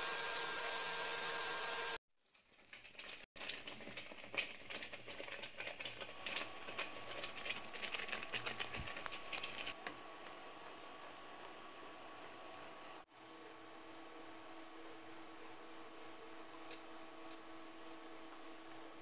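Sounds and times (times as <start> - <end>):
sauce bubbling and popping: 2.2 - 10.0.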